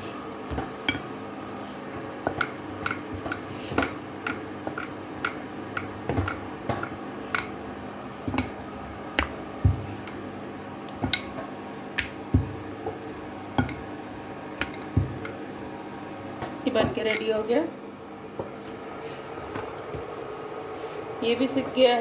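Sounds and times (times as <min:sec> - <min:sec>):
rolling pin rolling dough on stone: 0:01.8 - 0:15.6.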